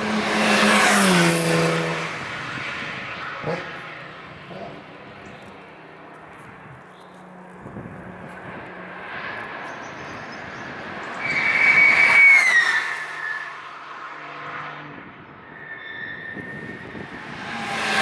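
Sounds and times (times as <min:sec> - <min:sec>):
car passing at speed: 0:00.0 - 0:06.6, 0:07.3 - 0:18.0
distant car engines droning: 0:00.0 - 0:15.6.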